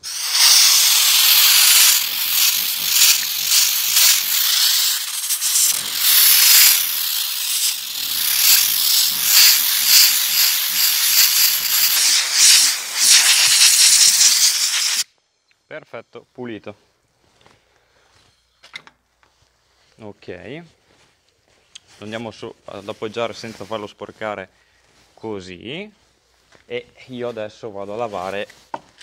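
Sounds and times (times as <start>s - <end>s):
compressed air blow gun hissing: 0.0s - 15.1s.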